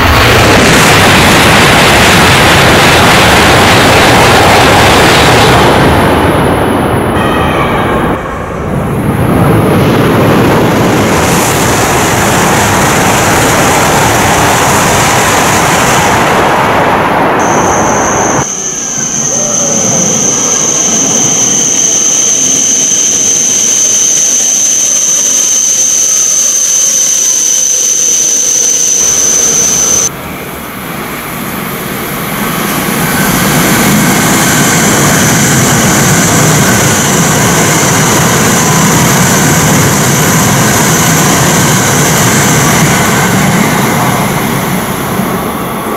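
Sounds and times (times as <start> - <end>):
high-pitched train whine: 0.0 - 45.9
high-speed train rushing past: 0.0 - 45.9.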